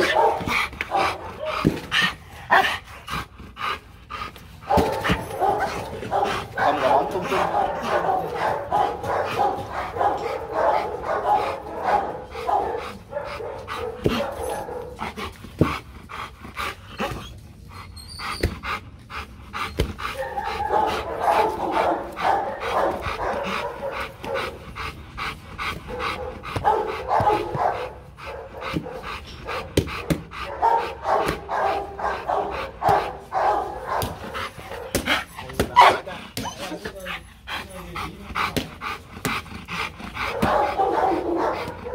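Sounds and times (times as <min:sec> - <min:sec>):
dog barking: 0:00.0 - 0:01.6, 0:04.6 - 0:15.0, 0:20.2 - 0:24.6, 0:25.9 - 0:36.5, 0:40.2 - 0:41.9.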